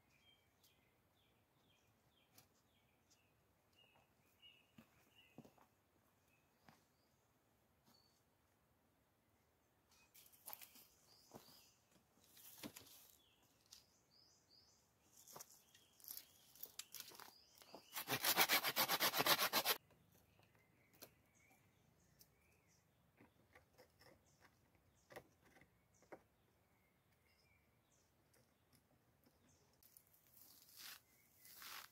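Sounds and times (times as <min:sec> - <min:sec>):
hand saw cutting wood: 0:17.9 - 0:19.8.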